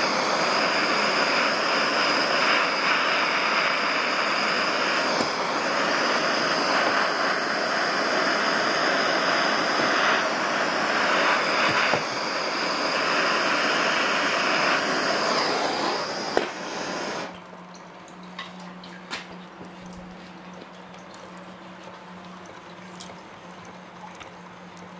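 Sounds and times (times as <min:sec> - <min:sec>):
gas torch hissing: 0:00.0 - 0:17.4.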